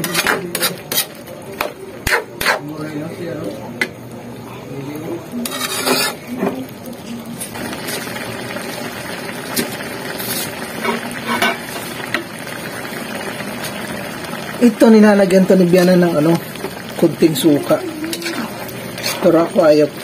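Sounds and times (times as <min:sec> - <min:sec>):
metal spatula scraping a wok: 0:00.0 - 0:01.2, 0:05.4 - 0:06.4, 0:10.1 - 0:11.9, 0:18.1 - 0:19.6
coconut milk simmering: 0:00.1 - 0:20.0.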